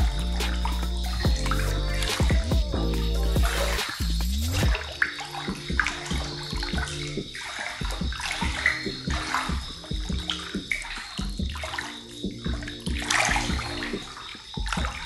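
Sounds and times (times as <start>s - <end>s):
background music: 0.0s - 15.0s
water pouring into a bath: 4.6s - 15.0s.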